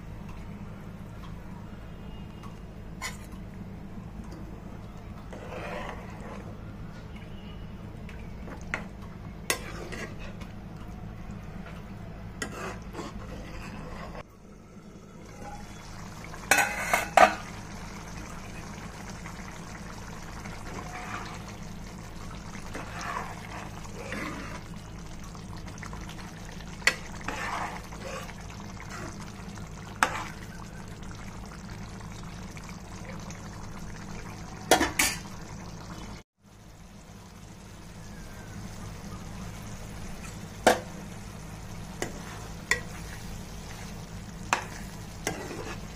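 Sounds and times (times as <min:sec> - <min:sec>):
ladle scraping a pan: 0:05.3 - 0:06.5, 0:09.5 - 0:10.5, 0:12.4 - 0:14.2, 0:16.4 - 0:17.5, 0:20.6 - 0:21.5, 0:22.6 - 0:24.7, 0:26.8 - 0:29.3, 0:29.9 - 0:30.5, 0:44.5 - 0:45.9
low hum: 0:13.1 - 0:45.3.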